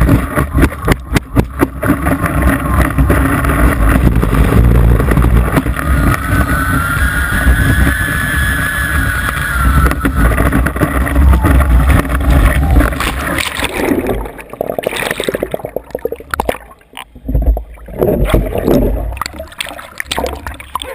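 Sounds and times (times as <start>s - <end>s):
steady whine: 0.0s - 14.6s
water splashing and gurgling: 0.0s - 20.9s
wind buffeting: 2.3s - 13.4s.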